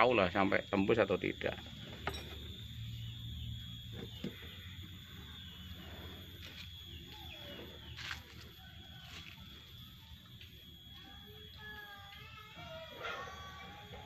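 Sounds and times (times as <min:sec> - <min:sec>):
birds chirping: 0:00.0 - 0:09.1
steady low hum: 0:00.0 - 0:14.0.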